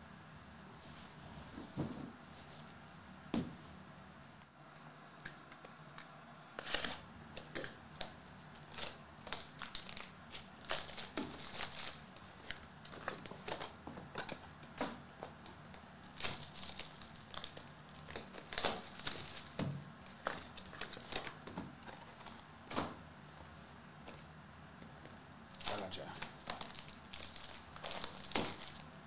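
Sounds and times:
plastic shrink-wrap crinkling and tearing: 6.6 - 14.4, 15.4 - 22.4, 25.5 - 29.0.

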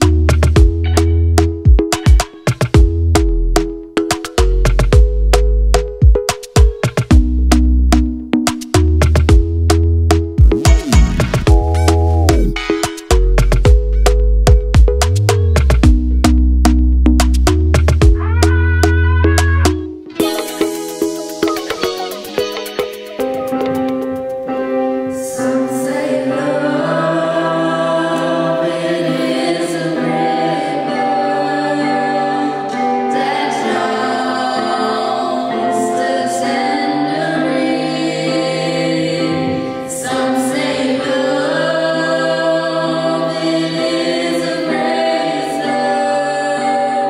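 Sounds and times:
young voices singing in harmony: 25.1 - 47.0.

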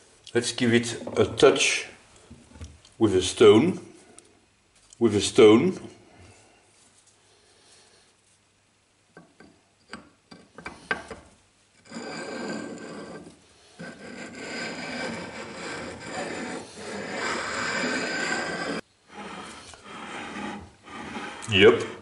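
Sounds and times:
stone scraping on metal: 11.8 - 22.0.

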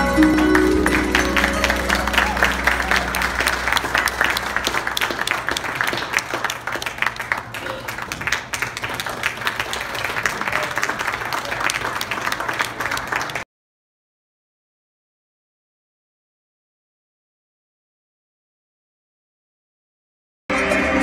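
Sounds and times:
audience applauding: 0.0 - 13.4
voices in crowd: 9.0 - 13.4.

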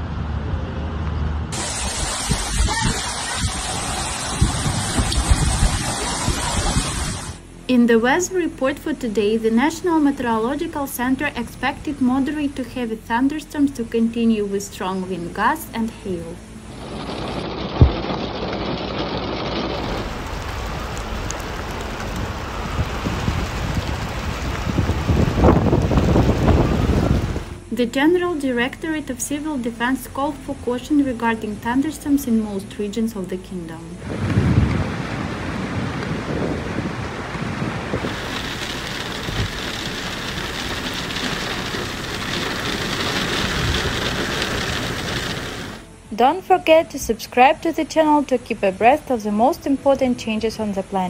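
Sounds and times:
heavy rain on a car: 1.6 - 7.4, 16.6 - 27.6, 34.0 - 45.9
low rumbling: 15.8 - 29.2, 33.4 - 46.1.

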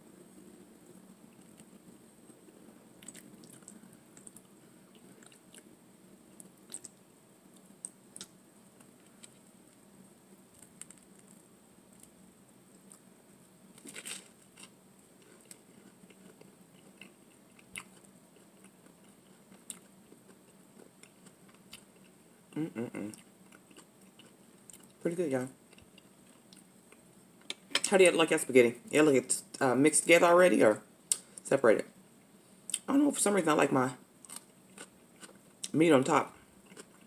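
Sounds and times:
faint low hum: 0.0 - 37.0
person chewing food: 0.8 - 5.7, 6.3 - 9.8, 13.8 - 25.0, 34.2 - 35.7, 36.6 - 37.0.

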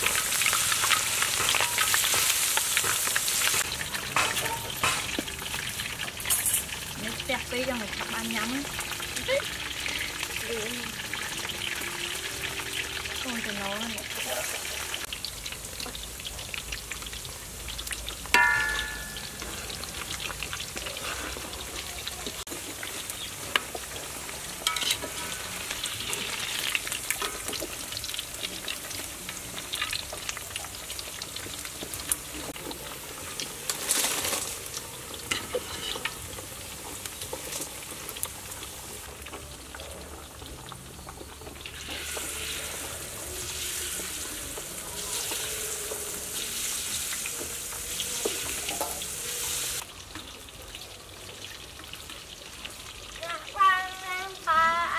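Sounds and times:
metal utensils scraping a wok: 0.0 - 7.2, 18.4 - 21.8, 22.8 - 28.2, 33.6 - 36.4, 41.8 - 49.8
food deep-frying in oil: 0.0 - 54.9
ringing metal clink: 18.4 - 19.5.

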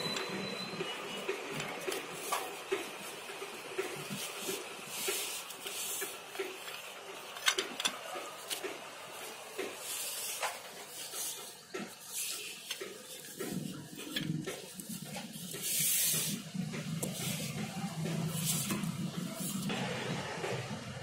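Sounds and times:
chair tubes knocking and clicking: 0.0 - 19.4
plastic sheet rustling: 1.4 - 19.7.

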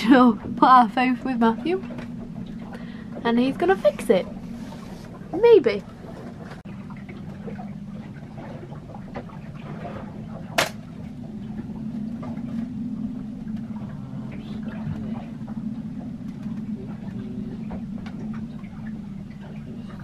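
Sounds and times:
steady low hum: 0.0 - 20.0
plastic sharp snap: 10.6 - 10.8.

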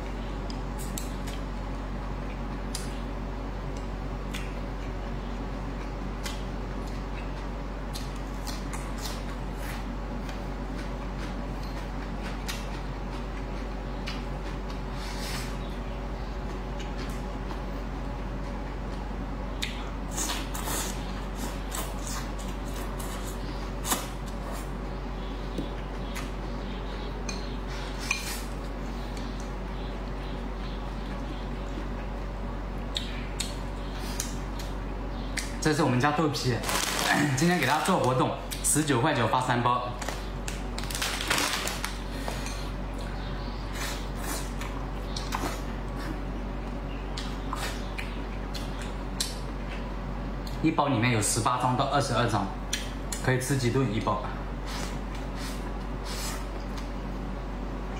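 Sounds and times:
soft wet chewing: 3.6 - 15.6, 16.4 - 24.7, 47.1 - 50.6.

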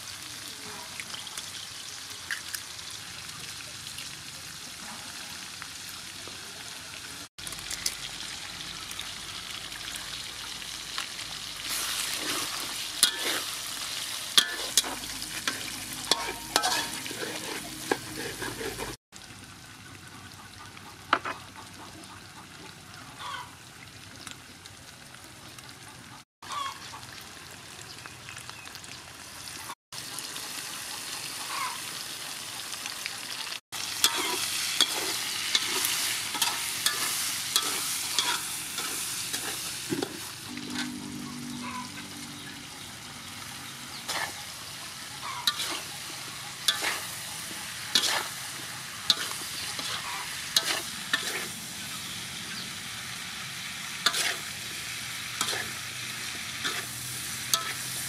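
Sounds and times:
food sizzling in a wok: 0.0 - 20.1, 23.2 - 58.0
metal spatula scraping a pan: 11.7 - 19.0, 34.0 - 41.0, 43.9 - 52.0, 54.0 - 58.0.

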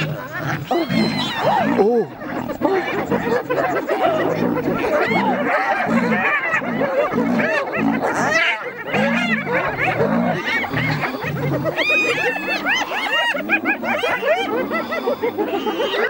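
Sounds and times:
deep growls: 0.0 - 12.5
hyenas giggling and cackling: 0.0 - 16.0.

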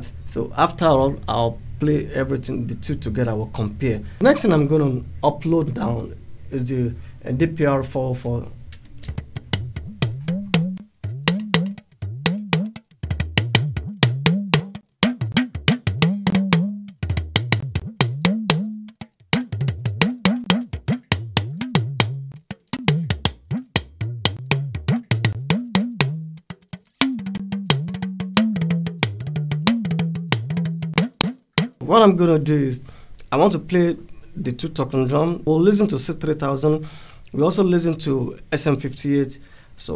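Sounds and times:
talking drum strikes with sliding pitch: 9.0 - 31.9.

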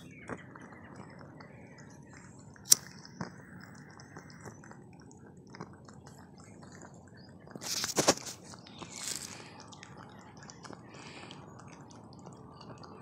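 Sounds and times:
lighter click: 2.7 - 2.9.

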